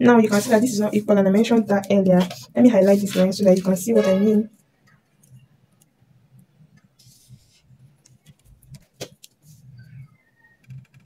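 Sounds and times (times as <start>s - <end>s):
ruler scraping on paper: 0.2s - 0.9s, 2.2s - 4.3s.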